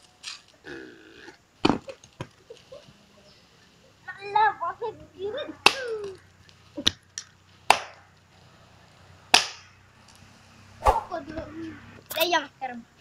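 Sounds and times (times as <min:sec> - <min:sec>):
wood striking a tree trunk: 0:01.6 - 0:02.3, 0:07.7 - 0:08.1, 0:09.3 - 0:09.7.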